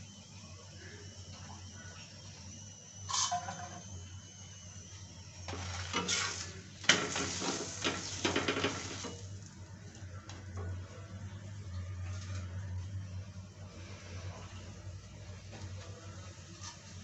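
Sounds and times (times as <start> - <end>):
flatbread sizzling and crackling: 5.4 - 9.6
spatula scraping hot pan: 5.5 - 9.2.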